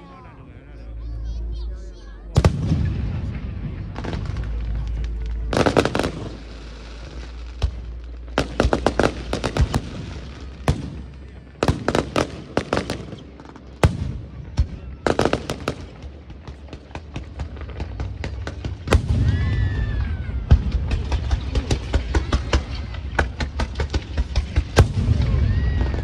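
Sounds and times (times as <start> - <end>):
firework crackles: 2.4 - 26.0
firework shells bursting: 4.0 - 14.1.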